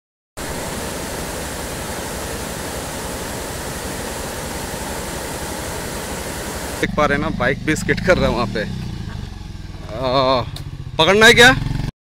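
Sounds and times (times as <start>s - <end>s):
river rushing over boulders: 0.4s - 6.9s.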